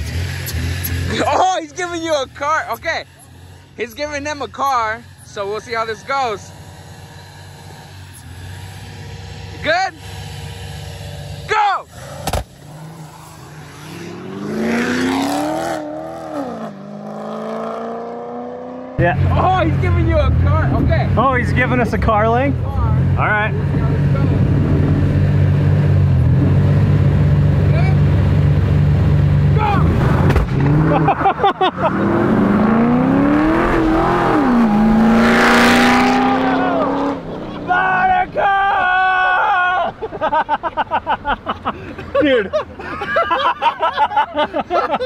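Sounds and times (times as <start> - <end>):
cars accelerating hard: 5.6 - 38.4
exhaust pops: 11.9 - 12.8, 29.6 - 30.8.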